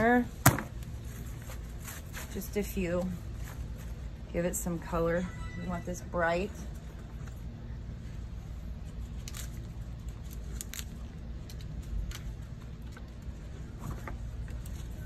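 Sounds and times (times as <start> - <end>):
foliage and stems rustling: 0.0 - 4.7
low hum: 0.0 - 15.0.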